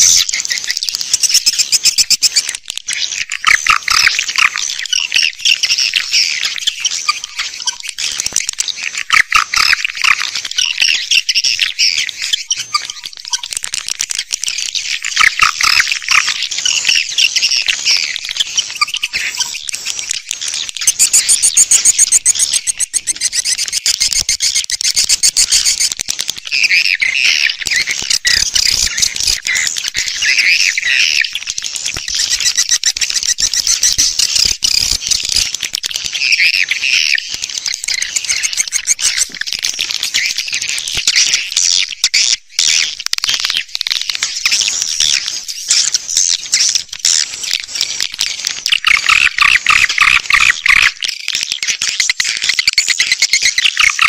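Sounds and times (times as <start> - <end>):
swiftlet chirps twittering: 20.8 - 25.9, 48.7 - 51.0.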